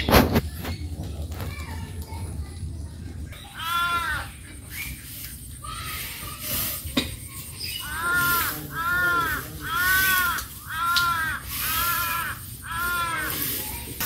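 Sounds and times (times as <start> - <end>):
crow cawing: 3.4 - 4.3, 7.8 - 13.5
rustling of dry straw: 3.4 - 14.0.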